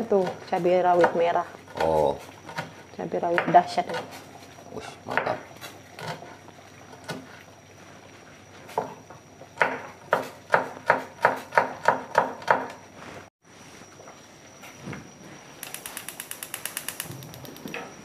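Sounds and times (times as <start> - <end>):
knife chopping on wooden board: 9.6 - 12.8.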